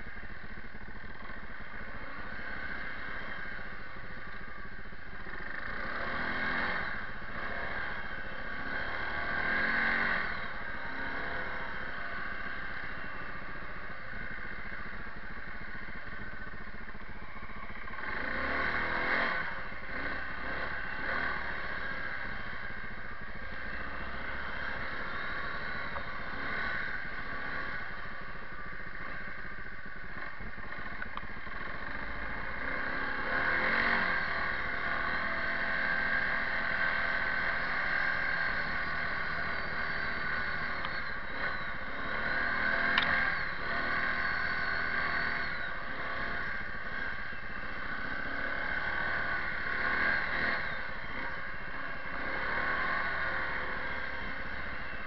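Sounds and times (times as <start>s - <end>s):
atv engine revving: 0.0s - 55.0s
sharp click: 42.9s - 43.2s.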